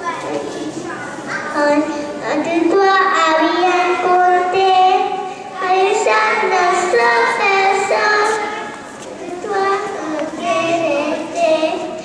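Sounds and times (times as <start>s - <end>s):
children singing: 1.3s - 12.0s.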